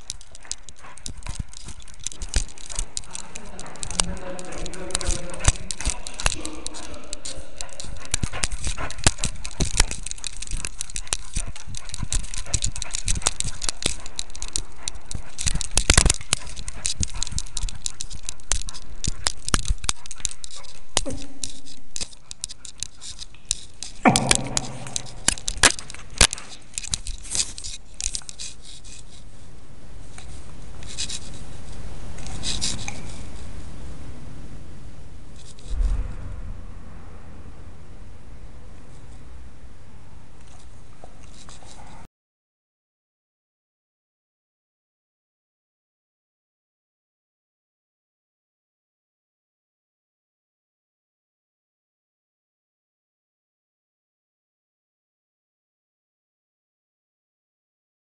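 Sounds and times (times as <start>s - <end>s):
camera rubbing on dog collar: 0.0s - 33.7s, 35.4s - 36.0s, 40.4s - 42.1s.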